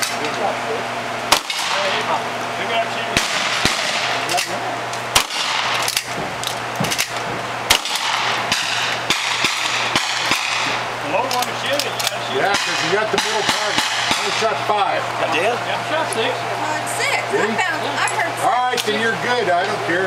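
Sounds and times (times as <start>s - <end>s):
loud rifle shots: 1.3s - 2.0s, 3.1s - 4.5s, 5.1s - 6.2s, 6.8s - 10.9s, 12.4s - 14.6s.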